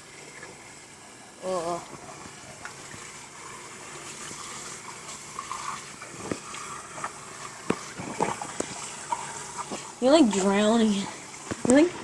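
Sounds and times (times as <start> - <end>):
tap water splashing: 1.8 - 3.2, 4.1 - 12.0.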